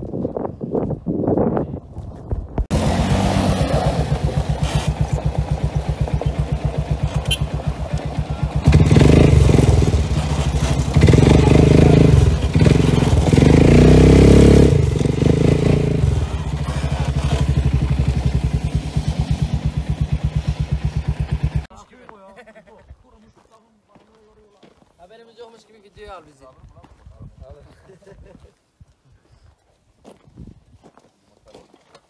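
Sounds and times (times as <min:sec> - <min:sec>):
quad bike engine running: 0:02.7 - 0:21.7.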